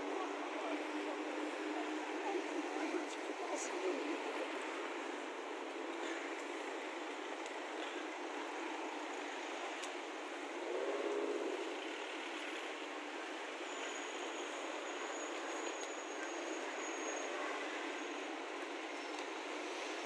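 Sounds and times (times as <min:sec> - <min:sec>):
city street traffic hum: 0:00.0 - 0:20.0.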